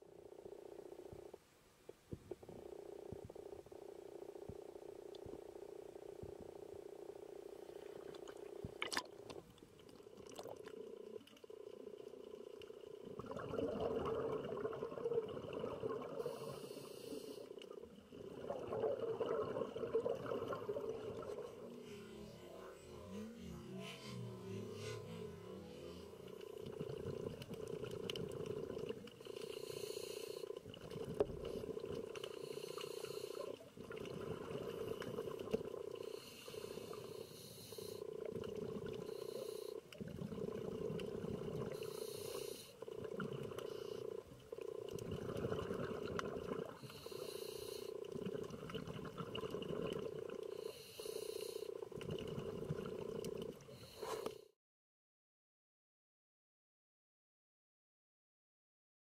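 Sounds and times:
diver breathing through regulator: 0:16.1 - 0:17.6, 0:28.6 - 0:33.7, 0:34.3 - 0:39.9, 0:41.3 - 0:44.3, 0:46.6 - 0:48.4, 0:49.9 - 0:52.0, 0:52.9 - 0:54.6.

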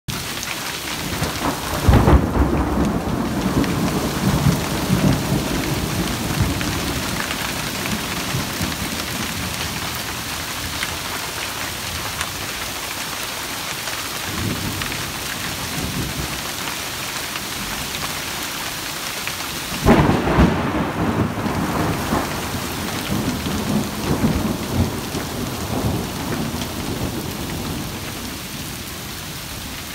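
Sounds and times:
hail and heavy rain pattering: 0:00.1 - 0:29.9
thunderclaps rolling: 0:01.0 - 0:09.8, 0:19.8 - 0:28.4.

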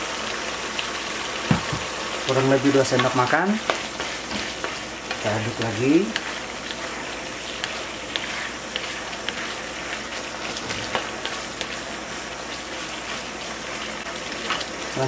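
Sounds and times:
chicken sizzling in a wok: 0:00.0 - 0:15.0
spatula scraping and tapping pan: 0:02.8 - 0:11.8, 0:14.3 - 0:14.7.

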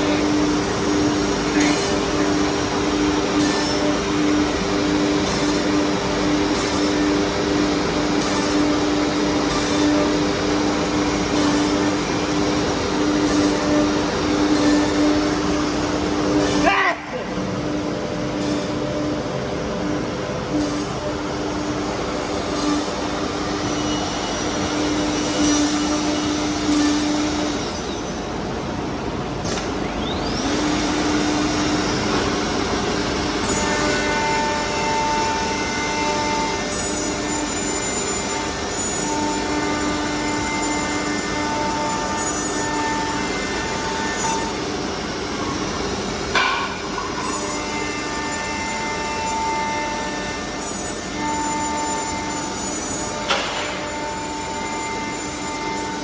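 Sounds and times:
router machine whine: 0:00.0 - 0:28.5, 0:29.4 - 0:46.4, 0:47.1 - 0:56.0
router machining wood: 0:29.9 - 0:46.4, 0:47.2 - 0:56.0.

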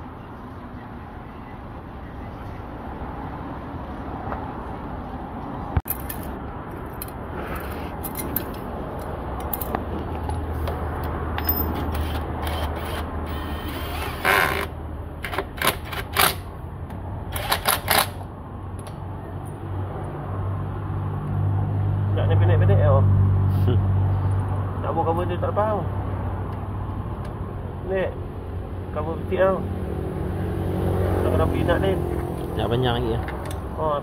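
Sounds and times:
cordless drill spinning: 0:11.8 - 0:14.7.

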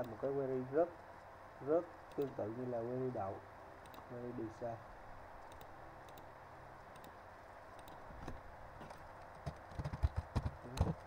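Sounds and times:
faint steady hiss: 0:00.0 - 0:09.8
mouse clicks: 0:02.1 - 0:02.4, 0:03.8 - 0:04.1, 0:05.4 - 0:06.3, 0:06.9 - 0:07.2, 0:07.8 - 0:08.4
computer keyboard typing: 0:05.5 - 0:06.3, 0:07.8 - 0:08.0, 0:09.3 - 0:11.0.

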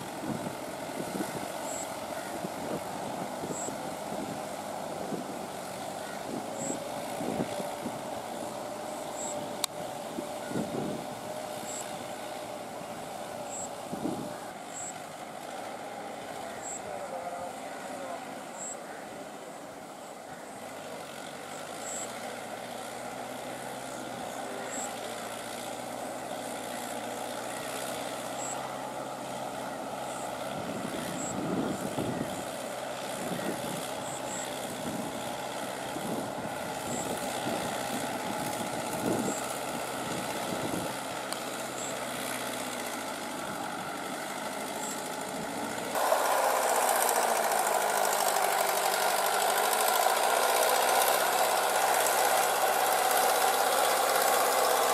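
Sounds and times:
tractor diesel engine running: 0:00.0 - 0:54.9
wheels splashing through mud and water: 0:20.6 - 0:54.9.

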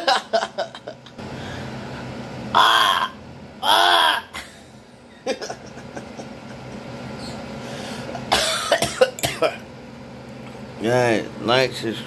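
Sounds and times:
faint steady hum: 0:00.0 - 0:12.0
man wailing: 0:02.6 - 0:04.4
man coughing: 0:08.2 - 0:09.6.

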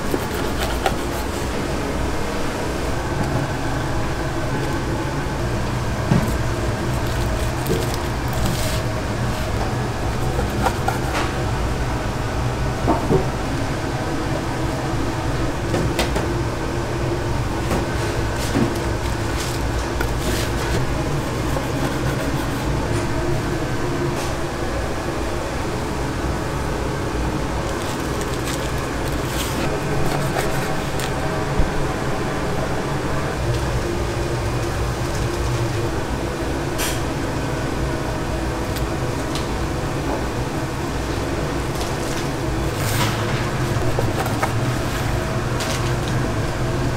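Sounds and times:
low mechanical hum: 0:00.0 - 0:46.9.

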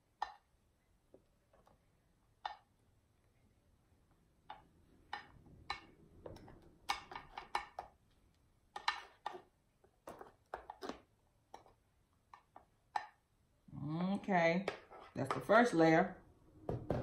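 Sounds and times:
spatula scraping and tapping bowl: 0:00.0 - 0:00.5, 0:02.4 - 0:02.7, 0:04.4 - 0:08.0, 0:08.7 - 0:13.2, 0:14.6 - 0:15.7.

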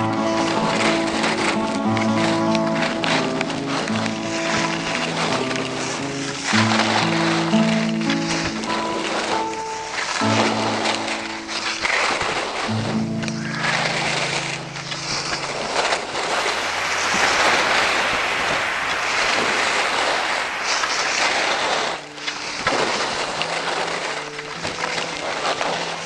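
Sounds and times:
wind rushing on microphone: 0:13.4 - 0:24.1.

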